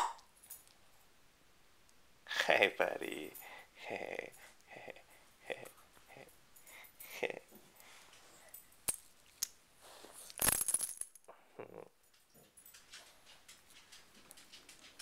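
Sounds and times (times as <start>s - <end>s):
dog tags clinking: 12.0s - 15.0s.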